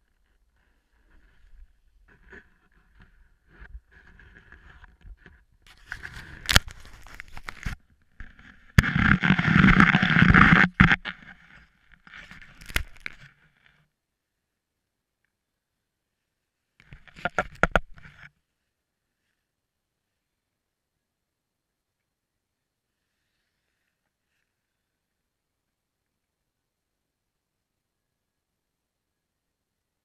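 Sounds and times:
scraping and rustling on camera: 0.1s - 13.8s, 16.8s - 18.4s.

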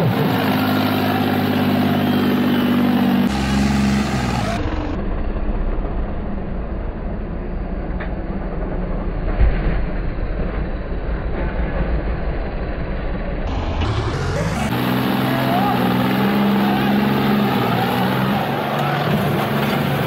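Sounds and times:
tractor diesel engine revving: 0.0s - 5.2s, 13.5s - 20.0s.

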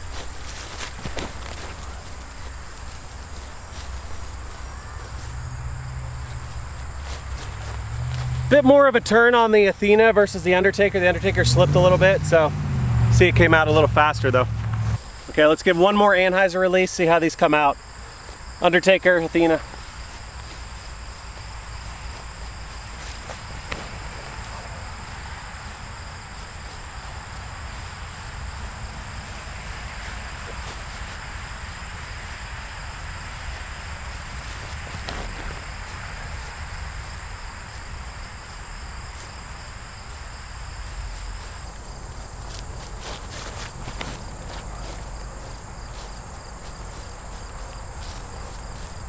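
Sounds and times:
insects singing: 0.0s - 49.0s
low rumble: 10.8s - 15.0s.

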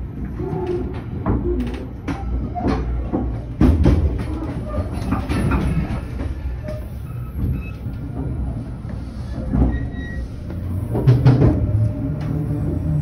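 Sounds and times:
train rumble inside coach: 0.0s - 13.0s.

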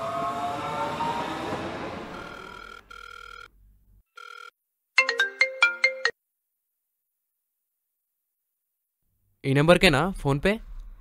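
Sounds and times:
metro train passing: 0.0s - 2.5s
phone ringing tone: 2.1s - 3.5s, 4.1s - 6.2s
melodic ringtone: 2.2s - 3.5s, 4.2s - 6.2s.

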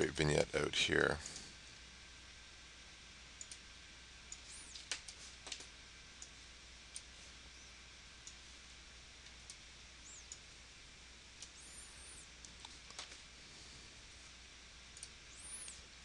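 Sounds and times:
low steady hum: 0.0s - 16.0s
computer mouse clicks: 3.4s - 3.6s, 4.3s - 7.1s, 14.9s - 15.8s
faint high-pitched chirps: 10.0s - 10.4s.

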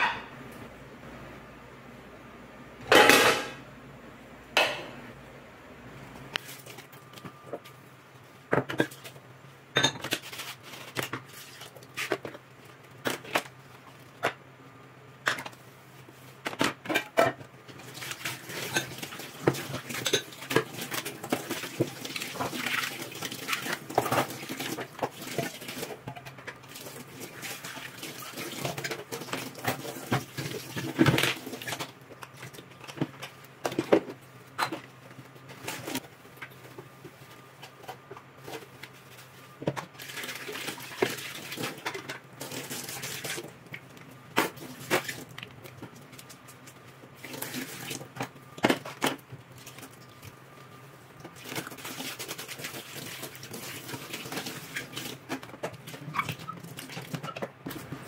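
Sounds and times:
dishes clattering and clinking: 0.0s - 0.4s, 2.8s - 3.6s, 9.7s - 10.4s.

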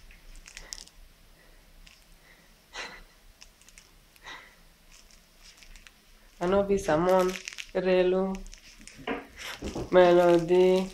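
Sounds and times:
person breathing close to microphone: 0.4s - 3.2s, 4.2s - 4.7s, 9.3s - 9.8s.

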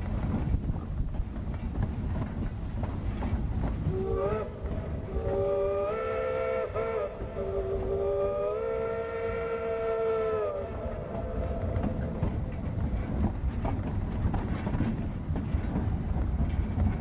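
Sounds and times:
train rumble and rail clatter: 0.0s - 17.0s
steam whistle blasts: 3.9s - 11.5s.

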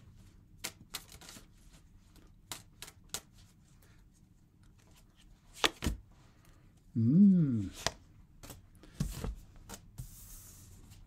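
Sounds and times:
cards snapping and tapping: 2.5s - 3.3s.

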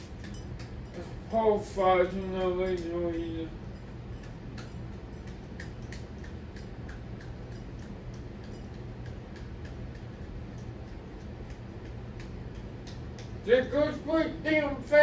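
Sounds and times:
ceiling fan motor hum: 0.0s - 15.0s
fan ticking: 0.0s - 15.0s.

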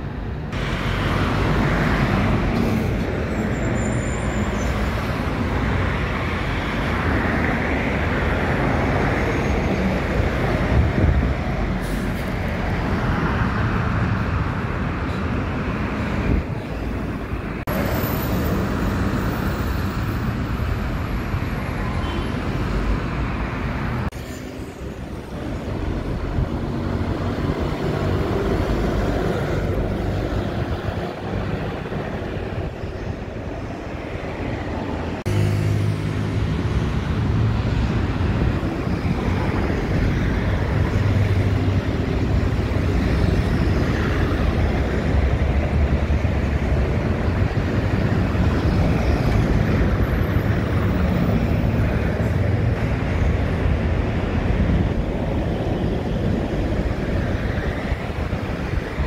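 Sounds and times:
buses and traffic passing: 0.0s - 59.0s.

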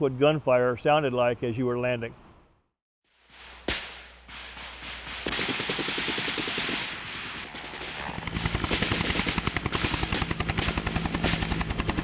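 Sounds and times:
helicopter rotor thumping: 3.6s - 12.0s
rapid automatic gunfire: 5.0s - 12.0s.

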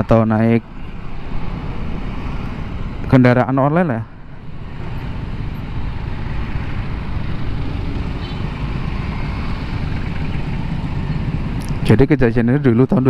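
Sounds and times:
dense city traffic: 0.0s - 13.0s.

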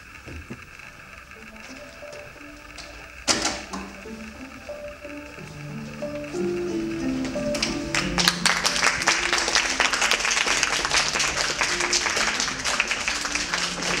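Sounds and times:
soft background music: 1.2s - 14.0s
audience applauding: 4.0s - 14.0s.

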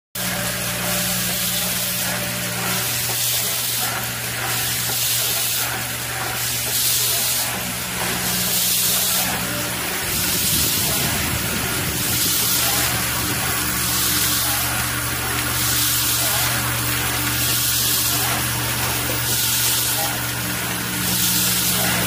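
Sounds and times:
bowl feeder humming: 0.2s - 22.0s
tapping machine: 0.2s - 22.0s
loud hiss: 6.4s - 15.0s.

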